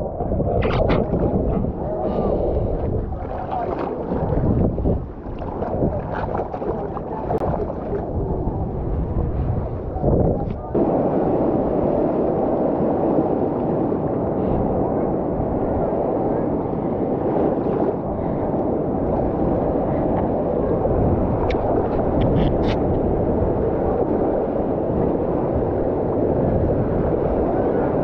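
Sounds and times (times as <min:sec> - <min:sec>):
muffled sea water sloshing: 0:00.0 - 0:11.1.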